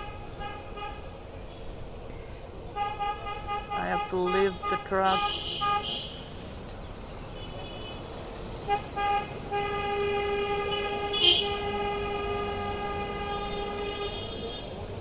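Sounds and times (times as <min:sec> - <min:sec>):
vehicle horn: 0:00.0 - 0:01.1, 0:02.7 - 0:06.2, 0:07.4 - 0:08.0, 0:08.7 - 0:14.8
low rumble of traffic: 0:00.0 - 0:15.0.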